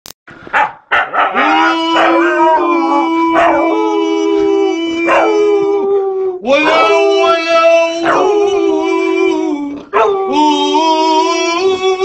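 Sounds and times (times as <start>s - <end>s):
dog yipping: 0.6s - 1.4s
dogs howling: 1.0s - 10.8s.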